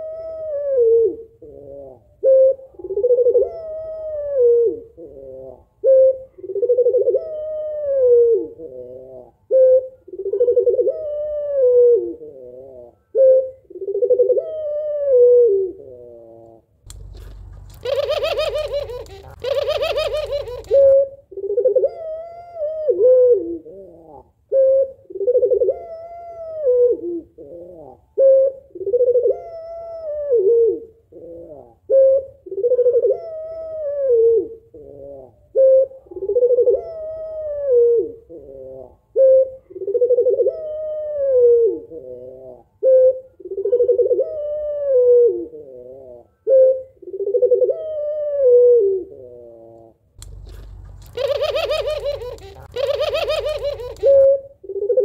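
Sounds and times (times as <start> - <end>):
dove cooing: 0.0 - 55.0
harsh bird call: 17.0 - 21.0, 50.3 - 54.3.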